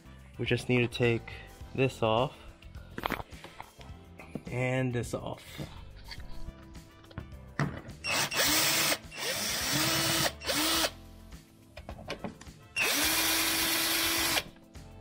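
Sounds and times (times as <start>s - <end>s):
power drill whining: 8.0s - 10.9s, 12.8s - 14.5s.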